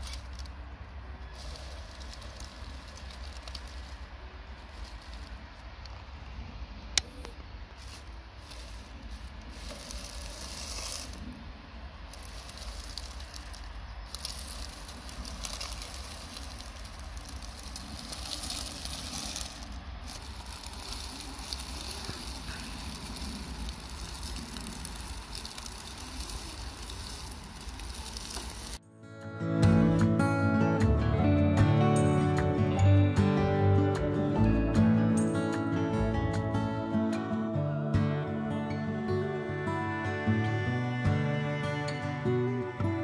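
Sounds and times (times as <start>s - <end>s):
dry leaves crackling under tyres: 0.0s - 28.8s.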